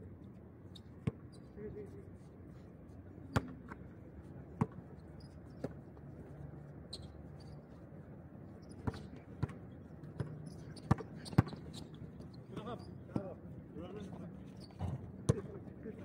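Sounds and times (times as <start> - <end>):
basketball bouncing on hard court: 10.2 - 11.6.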